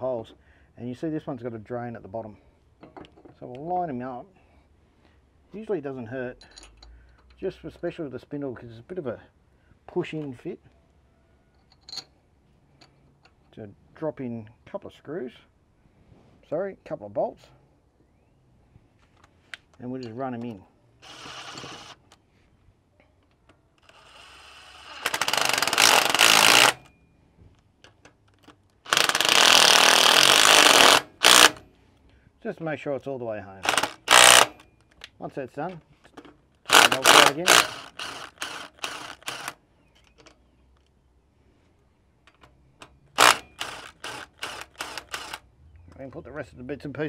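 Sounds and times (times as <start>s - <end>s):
impact driver bursts: 21.0s - 22.0s, 23.8s - 26.9s, 28.8s - 31.6s, 33.6s - 34.6s, 36.7s - 39.6s, 43.1s - 45.4s.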